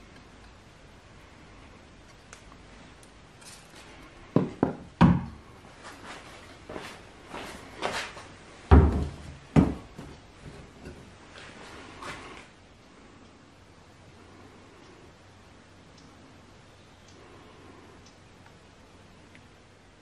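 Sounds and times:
faint handling noises: 1.9s - 4.6s.

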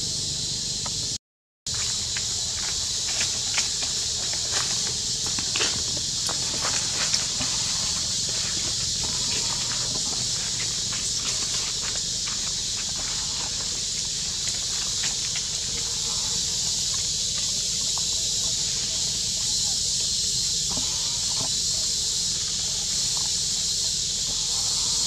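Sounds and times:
steady high hiss: 0.0s - 25.0s
monkeys rustling through branches: 1.8s - 19.9s.

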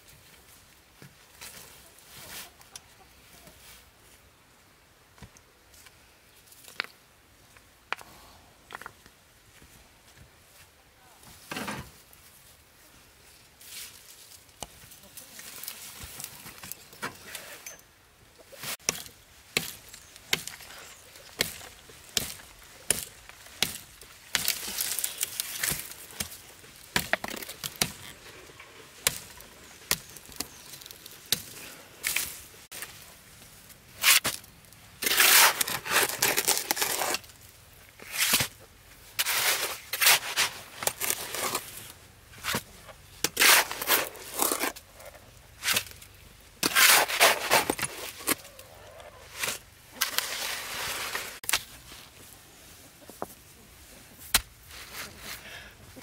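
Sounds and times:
rough scraping: 35.0s - 37.3s, 38.0s - 52.2s.

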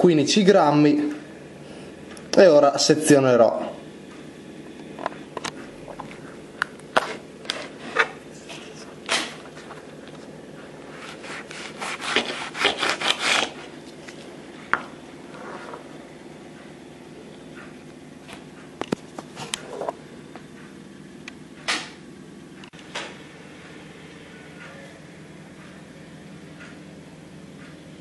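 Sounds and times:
knife cutting on cutting board: 11.0s - 13.7s.

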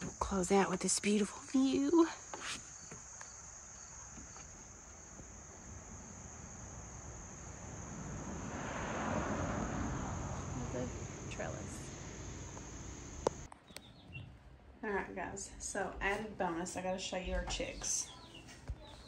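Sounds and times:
insects trilling: 0.0s - 14.1s
rushing noise: 5.4s - 13.5s.

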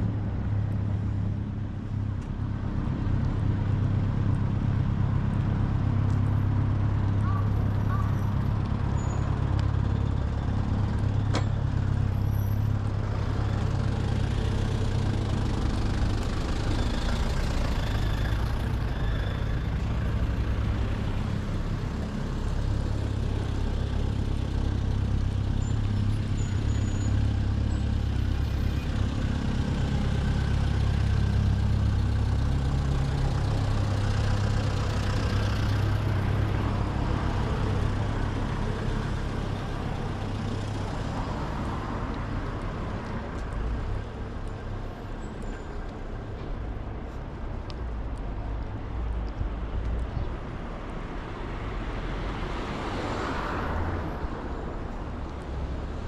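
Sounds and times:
road traffic engines and tyres: 0.0s - 56.0s.

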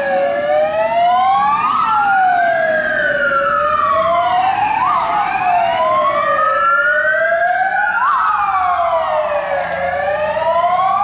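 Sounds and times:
fire engine sirens wailing: 0.0s - 11.0s.

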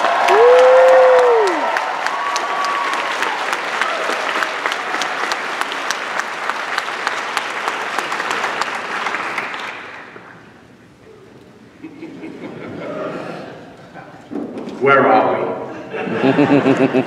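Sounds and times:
audience applauding: 0.0s - 10.5s.

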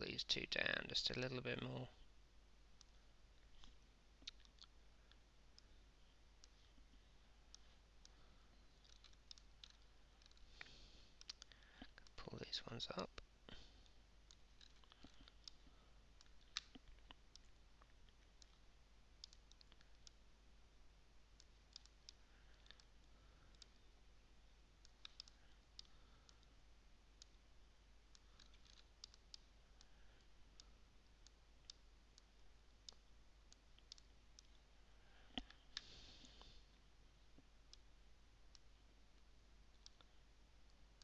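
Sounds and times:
computer mouse clicks: 2.8s - 5.7s, 8.8s - 12.2s, 14.2s - 18.6s, 19.2s - 20.2s, 21.4s - 23.8s, 24.8s - 26.6s, 28.1s - 34.6s.

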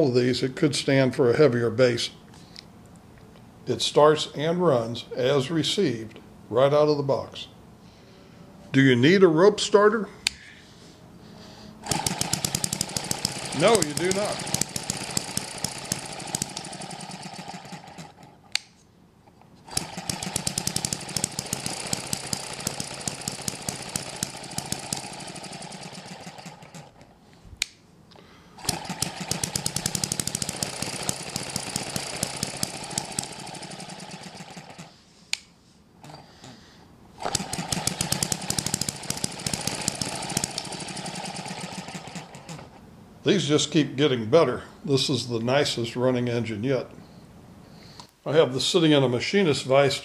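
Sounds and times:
model engine rapid popping: 11.8s - 18.3s, 19.7s - 27.0s, 28.6s - 34.9s, 37.2s - 42.7s.

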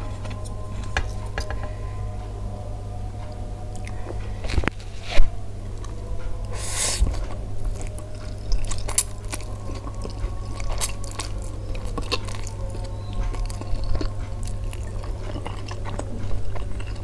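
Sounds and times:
steady low hum: 0.0s - 17.0s
slurping and chewing noodles: 5.8s - 17.0s.

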